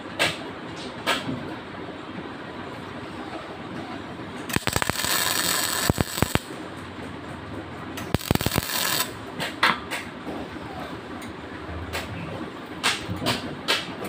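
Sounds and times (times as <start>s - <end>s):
arc welding crackling and hissing: 4.4s - 6.7s, 7.9s - 9.6s.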